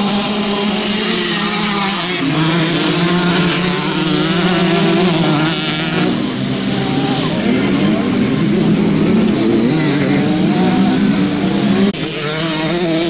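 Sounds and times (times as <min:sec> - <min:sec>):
motocross bike engines revving: 0:00.0 - 0:13.0.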